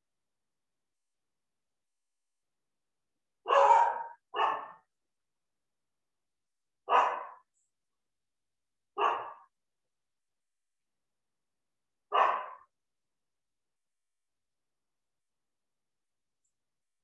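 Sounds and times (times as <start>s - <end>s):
dog barking: 3.4s - 4.9s, 6.8s - 7.5s, 9.0s - 9.5s, 12.1s - 12.7s.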